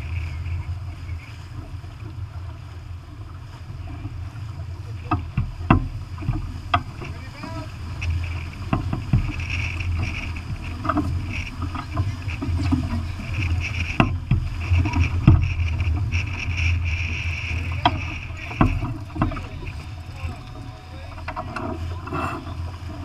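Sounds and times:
sail luffing and flapping: 0:00.0 - 0:23.0
water surging along hull: 0:00.0 - 0:23.0
wind rushing over microphone: 0:05.3 - 0:23.0.

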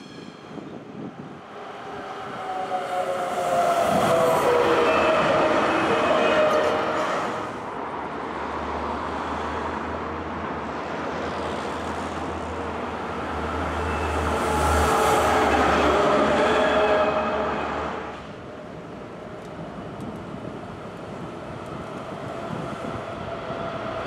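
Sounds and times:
tram passing: 0:00.0 - 0:24.0
rumble of tram wheels: 0:15.2 - 0:24.0.

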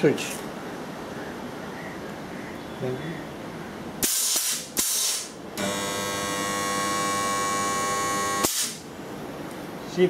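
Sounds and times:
compressed air hisses: 0:04.0 - 0:05.3, 0:08.4 - 0:08.8
welder transformer humming: 0:04.2 - 0:08.9.

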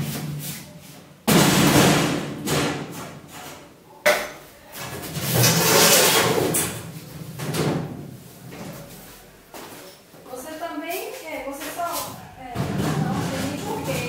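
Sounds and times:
cabinet scraping and rattling: 0:12.5 - 0:14.0.

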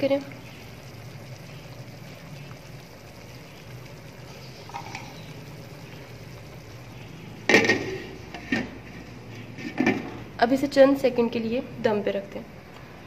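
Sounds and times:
lid knocking as it settles: 0:07.5 - 0:08.8.

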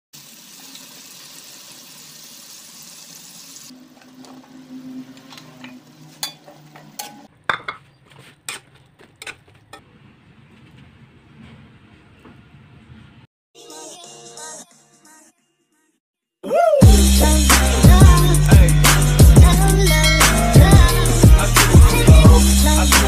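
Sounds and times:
food sizzling in a wok: 0:00.2 - 0:03.9
spatula scraping a wok: 0:03.8 - 0:11.8.

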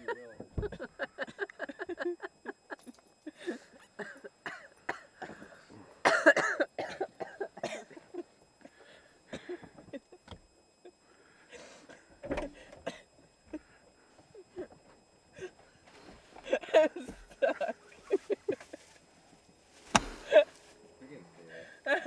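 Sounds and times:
woman laughing: 0:00.0 - 0:04.6, 0:16.4 - 0:18.9, 0:20.2 - 0:20.6
woman coughing: 0:04.0 - 0:08.0, 0:09.3 - 0:09.7.

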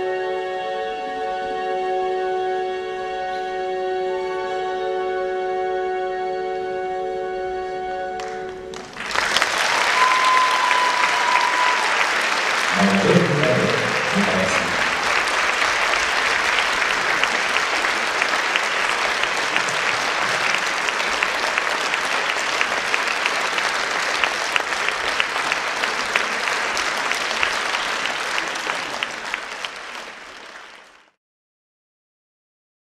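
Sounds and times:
audience applauding: 0:08.2 - 0:31.2.

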